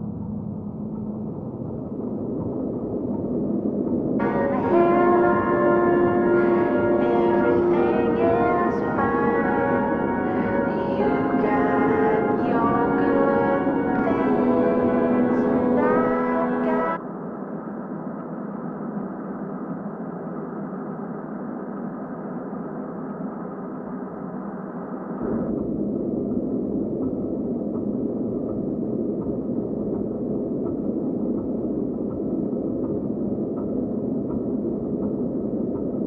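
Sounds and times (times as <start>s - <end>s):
deep rumble: 0.0s - 36.0s
hissing noise drone: 4.2s - 17.0s.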